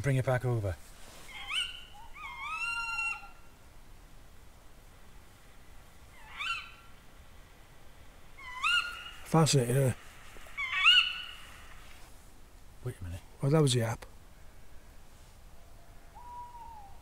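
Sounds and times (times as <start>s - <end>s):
owl calls sweeping up: 1.0s - 3.5s, 6.1s - 7.0s, 8.3s - 12.1s, 15.6s - 17.0s.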